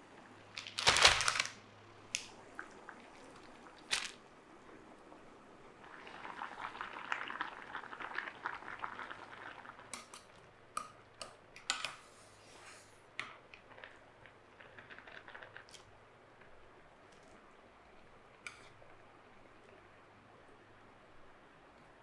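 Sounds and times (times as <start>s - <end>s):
noodles bubbling in boiling water: 0.1s - 22.0s
chopsticks clicking against pot: 9.9s - 12.0s.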